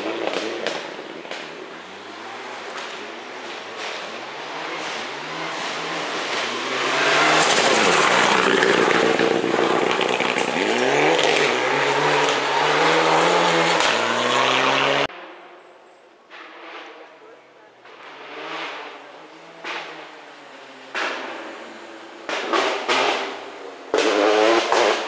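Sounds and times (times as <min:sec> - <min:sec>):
rally car engine revving: 0:00.0 - 0:15.1, 0:16.3 - 0:25.0.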